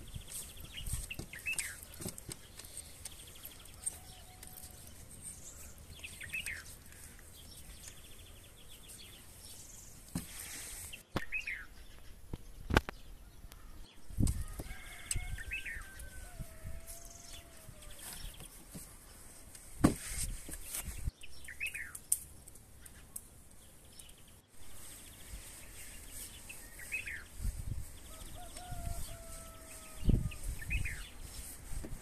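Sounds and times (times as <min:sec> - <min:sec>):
small birds chirping: 0:00.0 - 0:32.0
rooster crowing: 0:03.8 - 0:04.9, 0:14.3 - 0:18.2, 0:28.1 - 0:30.8.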